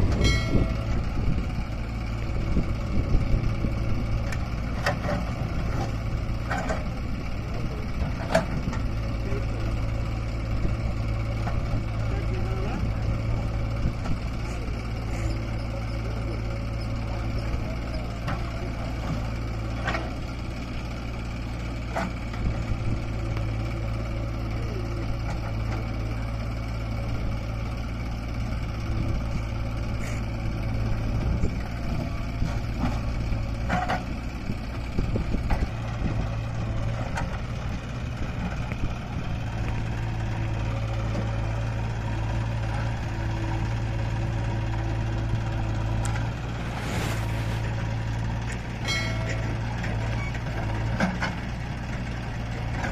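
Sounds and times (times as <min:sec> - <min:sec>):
diesel engines running: 0:00.0 - 0:52.9
low hum: 0:45.7 - 0:49.9.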